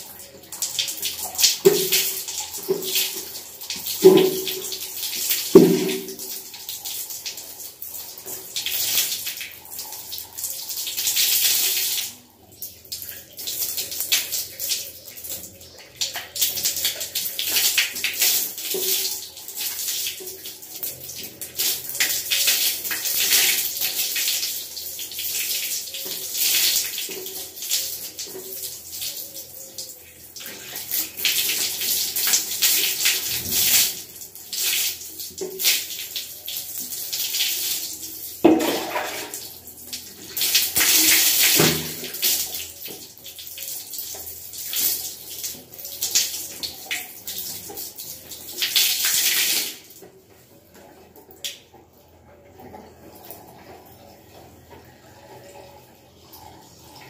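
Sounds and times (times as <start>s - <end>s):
water splashing onto floor: 0.6s - 6.5s, 37.2s - 50.1s.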